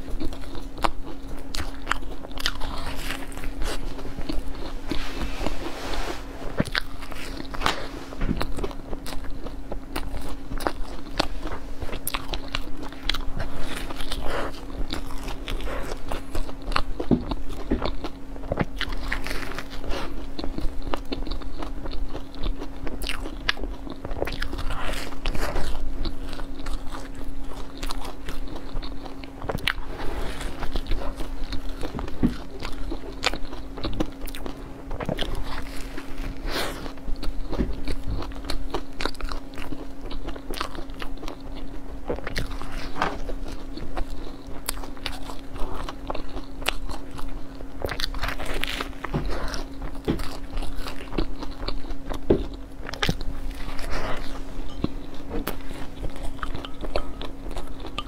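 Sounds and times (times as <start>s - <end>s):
soft chewing: 0.0s - 58.0s
steady low hum: 0.0s - 58.0s.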